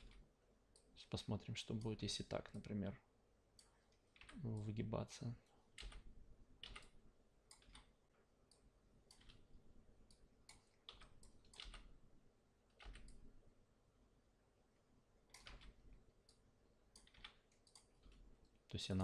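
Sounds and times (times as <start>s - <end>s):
mouse and keyboard clicks: 17.0s - 18.2s.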